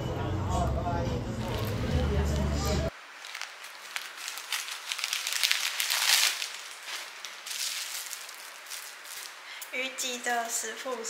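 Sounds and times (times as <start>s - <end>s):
scissors cutting plastic bag: 1.4s - 2.0s, 3.2s - 9.4s
crinkling plastic: 1.4s - 9.8s.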